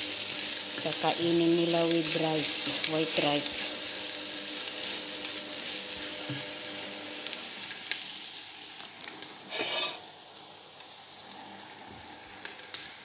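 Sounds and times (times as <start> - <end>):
onion sizzling in oil: 0.0 - 13.0
spatula scraping pan: 9.5 - 10.1.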